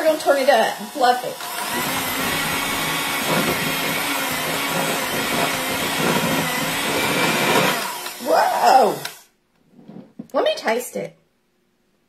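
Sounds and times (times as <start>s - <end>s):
electric hand mixer whipping: 0.0s - 9.3s.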